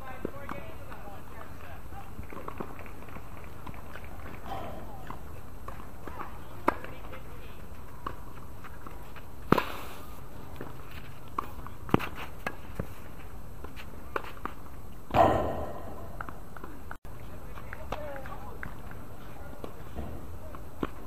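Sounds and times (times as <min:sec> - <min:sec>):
tennis ball bouncing: 0:00.2 - 0:01.5, 0:02.3 - 0:07.3, 0:14.1 - 0:16.9
racket striking tennis ball: 0:15.1 - 0:16.4.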